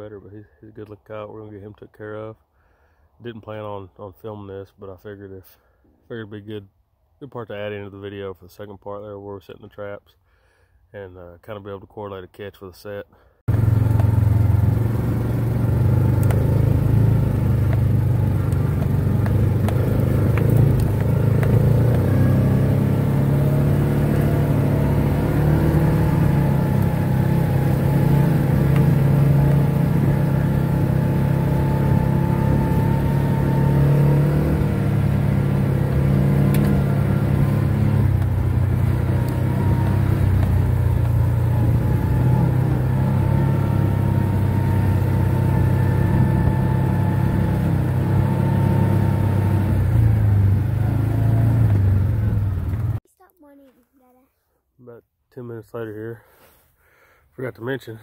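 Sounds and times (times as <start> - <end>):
utility vehicle engine running: 13.5 - 53.0.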